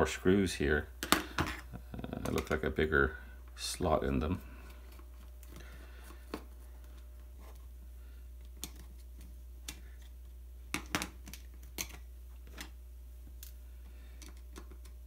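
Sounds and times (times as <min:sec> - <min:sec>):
small tools clicking and tapping: 0:10.7 - 0:12.7.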